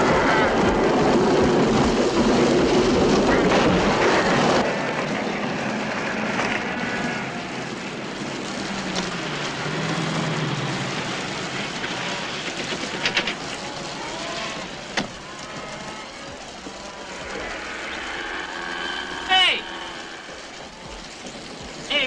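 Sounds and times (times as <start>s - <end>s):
steady rain: 0.0s - 22.0s
cluster of clicks: 11.2s - 22.0s.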